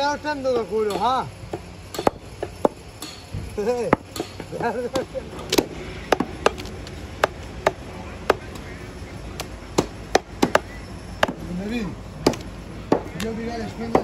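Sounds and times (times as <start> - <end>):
cleaver chopping meat on wood: 5.0 - 8.6, 9.4 - 11.4, 12.2 - 13.2.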